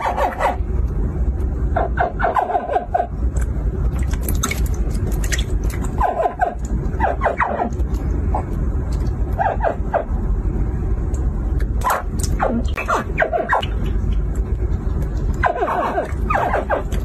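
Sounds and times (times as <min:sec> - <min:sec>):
steady low rumble: 0:00.0 - 0:17.0
hatchling crocodiles chirping: 0:11.9 - 0:14.3.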